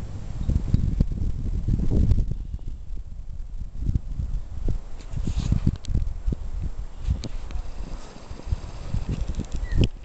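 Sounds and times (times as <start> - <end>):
footsteps in deep snow: 7.0 - 9.3.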